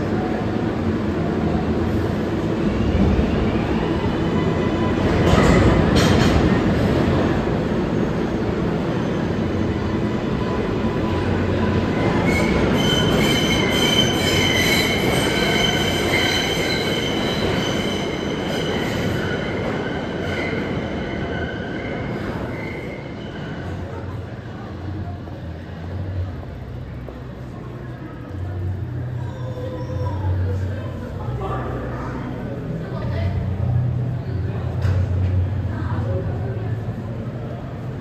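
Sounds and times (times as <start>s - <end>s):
subway train rumbling clatter: 0.0s - 38.0s
high-pitched wheel squeal: 12.0s - 21.8s.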